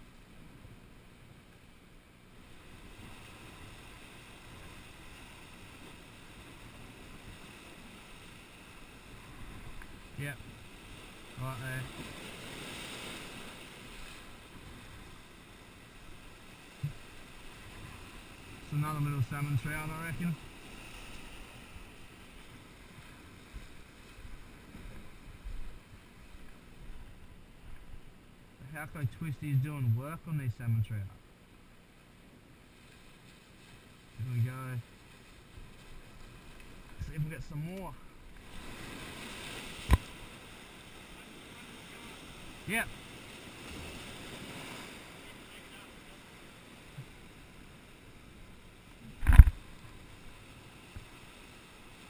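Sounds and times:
surf washing over rocks: 2.4 - 27.1, 32.7 - 52.0
wind rumbling on microphone: 49.0 - 50.3.

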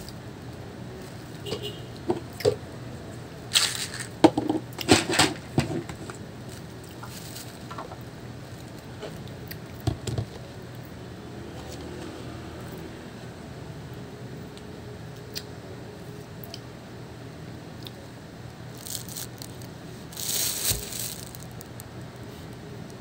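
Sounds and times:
wet squishing and crackling fruit: 3.5 - 4.2, 17.8 - 22.6.

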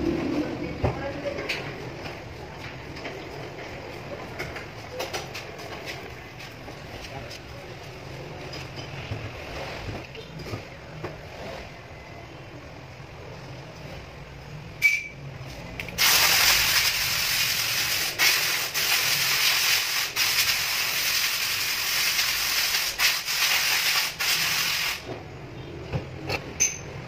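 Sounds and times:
gas hissing: 16.0 - 25.1.

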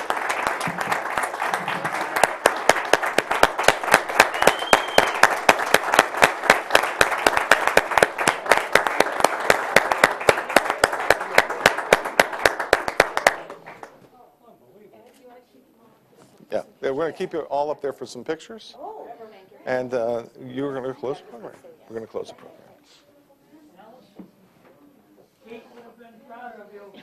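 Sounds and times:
audience applauding: 0.0 - 14.0
close hand claps: 0.0 - 14.0.

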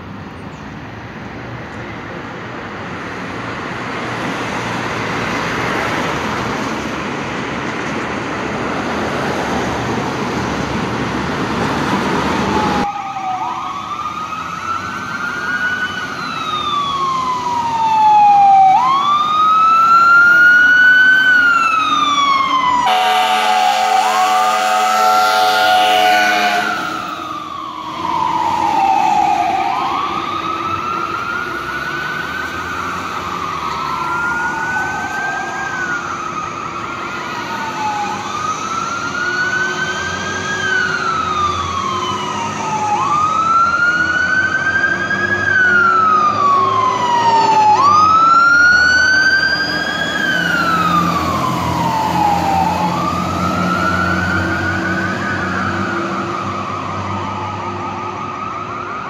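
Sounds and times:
electronic siren wailing: 12.4 - 59.0
second siren tone: 22.8 - 30.6.

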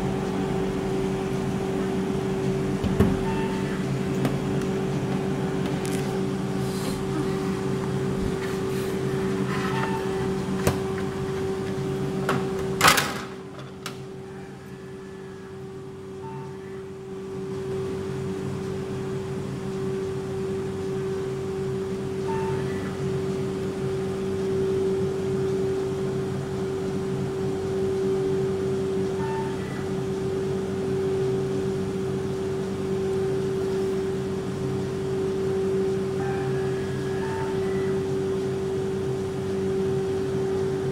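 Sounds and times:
ice cream machine humming: 0.0 - 40.9.

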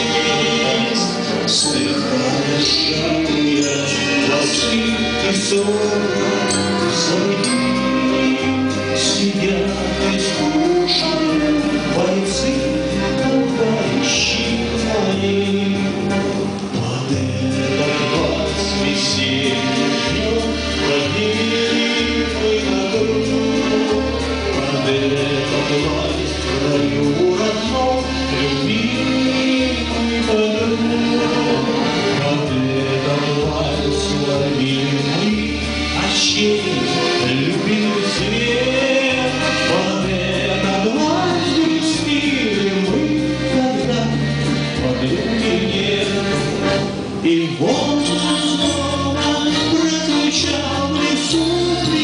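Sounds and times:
accordion: 0.0 - 52.0
man singing: 0.0 - 52.0
button accordion playing waltz: 35.5 - 40.6, 43.2 - 47.2.

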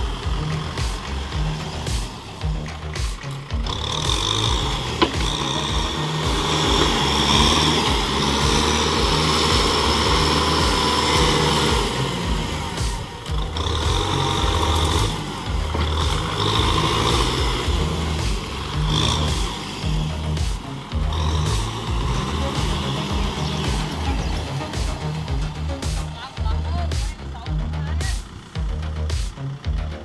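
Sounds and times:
blade pushing wet mud: 0.0 - 26.7
tractor diesel engine under load: 0.0 - 30.0.

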